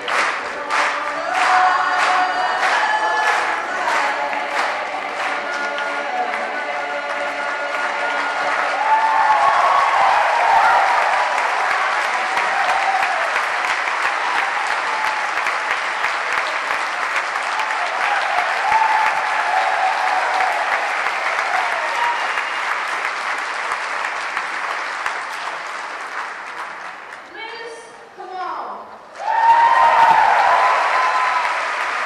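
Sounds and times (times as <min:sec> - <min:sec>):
crowd clapping: 0:00.0 - 0:27.4, 0:29.1 - 0:32.0.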